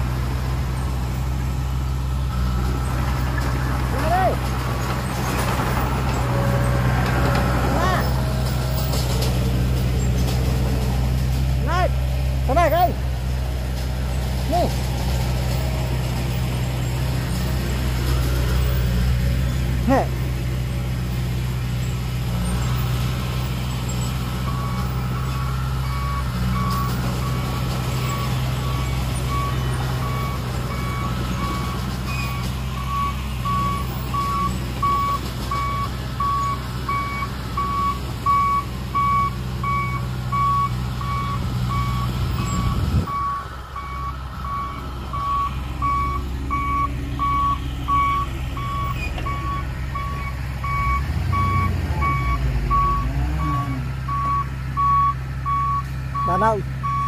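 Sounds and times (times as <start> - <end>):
diesel engine running: 0.0 - 57.0
back-up alarm beeping: 24.5 - 53.1, 54.1 - 57.0.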